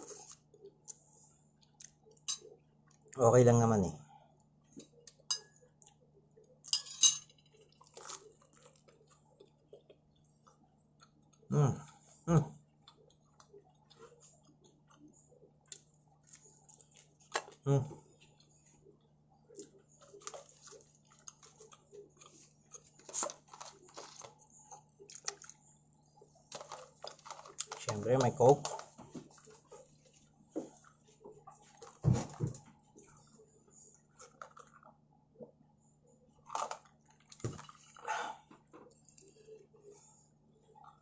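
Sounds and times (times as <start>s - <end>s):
metal spoon clinking on saucer: 6.7s - 7.4s
crunchy pizza chewing: 7.5s - 32.1s, 33.0s - 35.2s.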